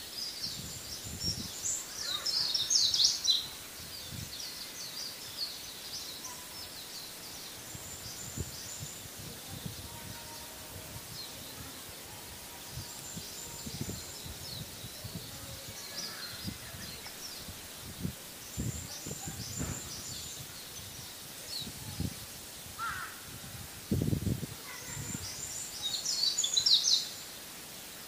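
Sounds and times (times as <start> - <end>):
small birds chirping: 0.0 - 28.0
low thumps on microphone: 18.0 - 20.4.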